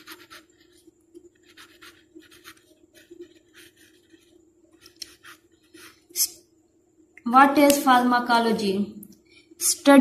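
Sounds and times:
pen scratching on paper: 0.0 - 6.3.

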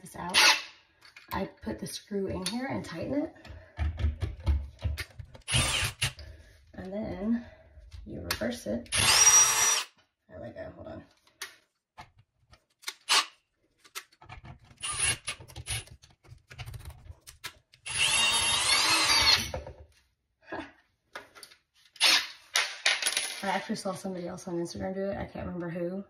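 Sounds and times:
cordless drill running: 5.5 - 6.2, 8.9 - 9.9, 14.8 - 15.8, 17.8 - 19.5.

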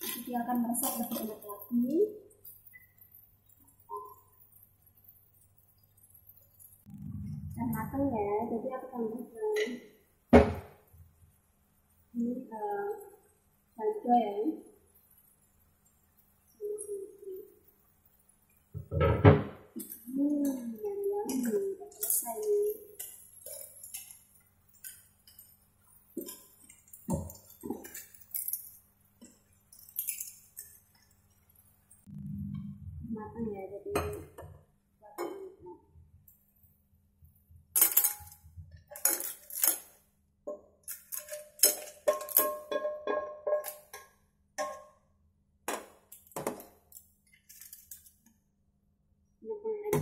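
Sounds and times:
clam shells clacking in a pan: 0.0 - 1.8, 19.8 - 31.9, 37.8 - 45.0, 45.7 - 48.3
faint low hum: 32.1 - 34.4.

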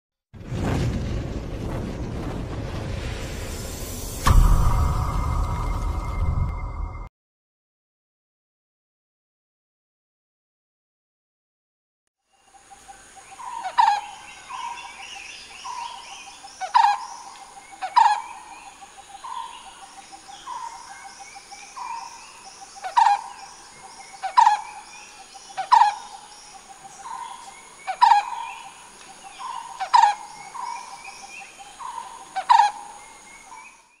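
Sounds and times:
barbet calling: 13.3 - 33.8.

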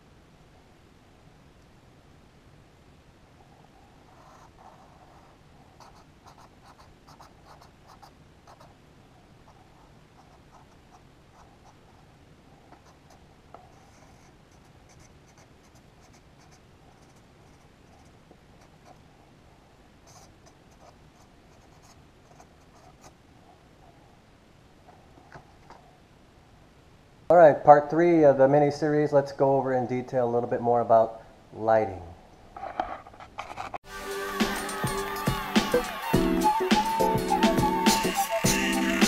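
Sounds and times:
marker scratching on paper: 4.1 - 8.8, 12.7 - 19.0.

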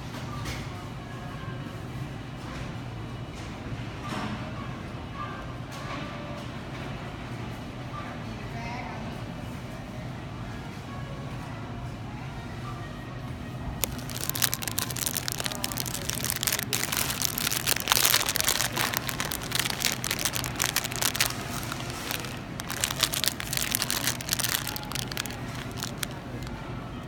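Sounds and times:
cellophane bag crinkling: 13.8 - 26.5.

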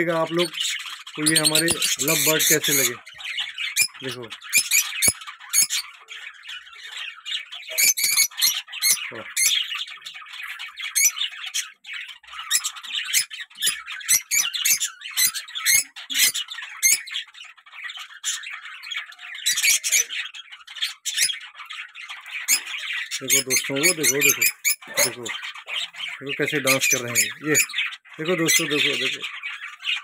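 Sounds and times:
lovebirds chattering and chirping: 0.0 - 30.0.

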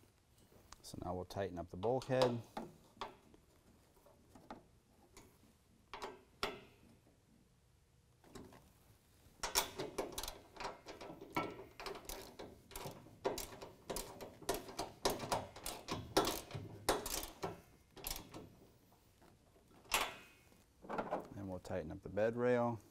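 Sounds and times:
hand ratchet clicking: 9.4 - 18.4.

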